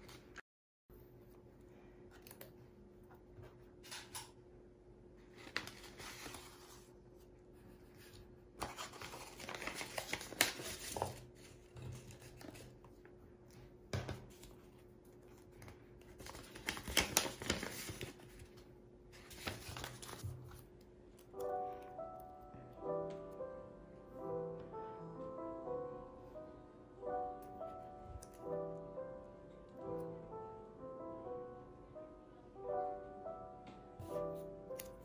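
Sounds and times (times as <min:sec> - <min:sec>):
paper rustling and crinkling: 0:05.3 - 0:20.7.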